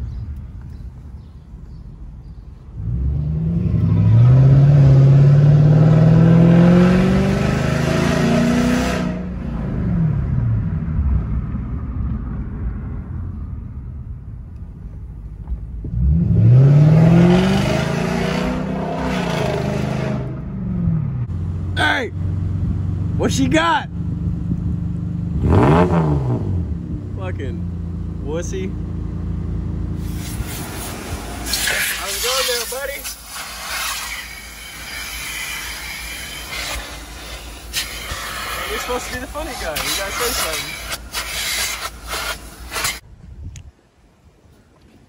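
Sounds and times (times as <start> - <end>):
car engine accelerating: 2.8 - 13.4, 15.8 - 32.1.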